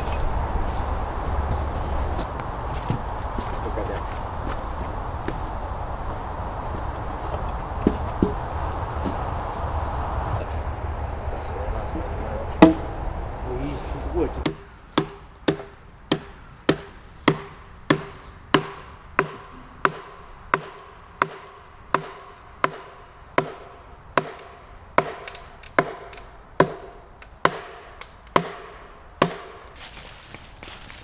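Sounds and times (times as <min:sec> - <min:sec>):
chopping into a log: 0:12.6 - 0:12.9, 0:14.4 - 0:29.6.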